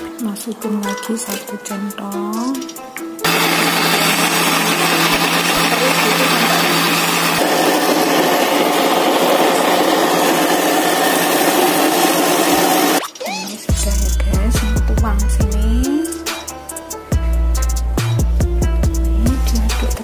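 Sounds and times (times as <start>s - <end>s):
blender motor grinding: 3.2s - 13.0s.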